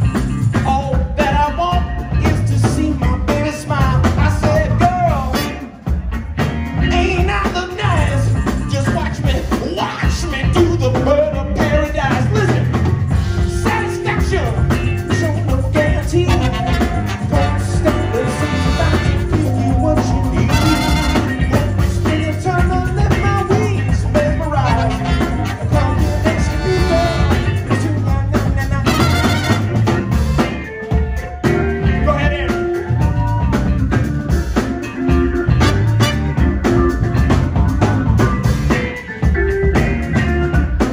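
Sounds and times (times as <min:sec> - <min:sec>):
live band with horn section: 0:00.0 - 0:40.9.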